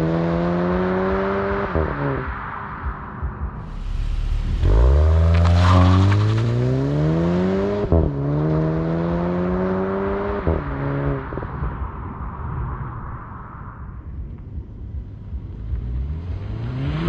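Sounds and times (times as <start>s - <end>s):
car engine accelerating hard: 3.6s - 11.8s, 15.5s - 17.0s.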